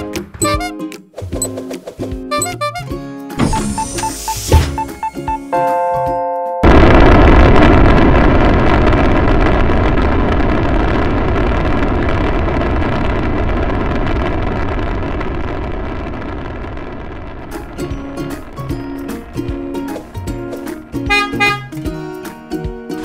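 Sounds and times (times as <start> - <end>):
short steady tone: 0.4 - 0.7, 2.3 - 5.8.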